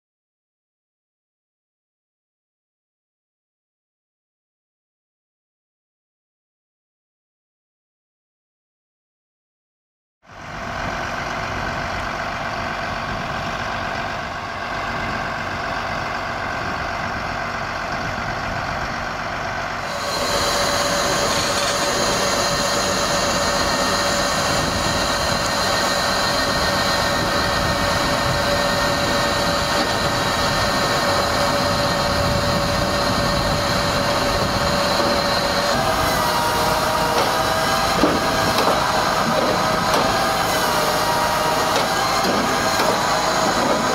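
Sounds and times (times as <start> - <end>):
tractor engine running: 10.3 - 43.9
machine whine: 19.6 - 43.9.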